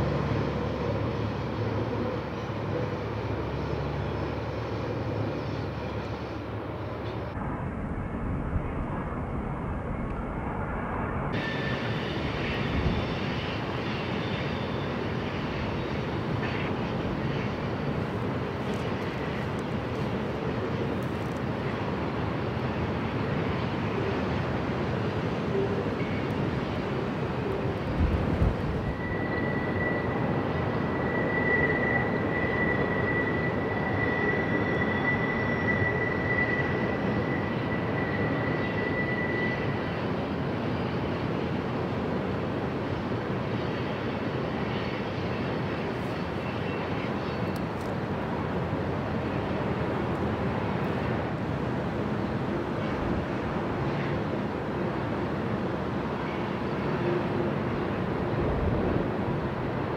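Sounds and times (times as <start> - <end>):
freight train rumbling by: 0.0 - 59.9
high wheel squeal: 11.4 - 20.6, 25.4 - 41.2.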